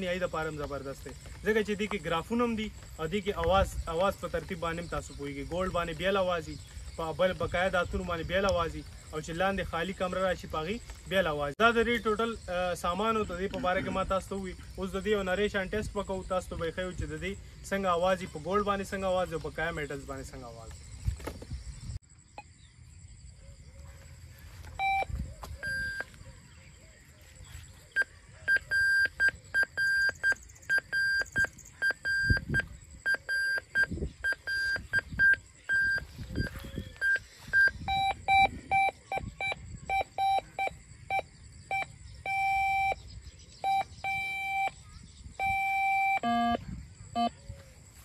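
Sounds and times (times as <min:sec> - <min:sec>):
metal detector beeps: 0:24.8 - 0:26.2, 0:27.9 - 0:47.4.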